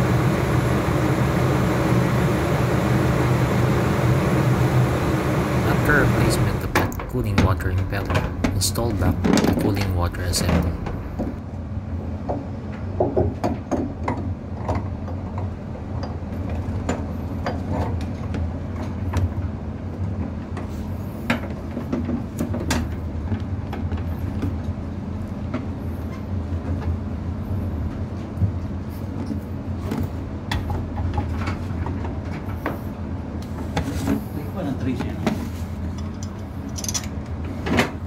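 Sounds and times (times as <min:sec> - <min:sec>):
low machinery hum: 0:00.0 - 0:38.0
metallic clicks and knocks: 0:36.0 - 0:37.2.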